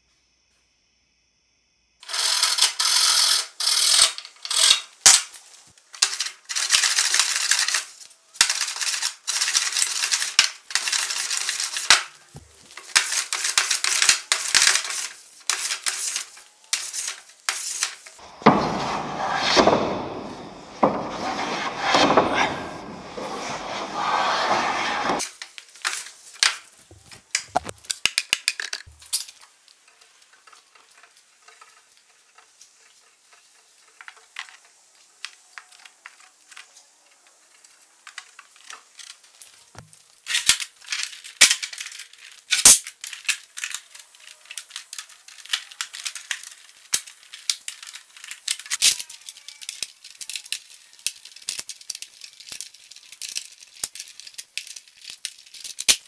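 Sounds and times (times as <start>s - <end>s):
wooden clamps clattering: 18.2s - 25.2s, 26.8s - 27.8s.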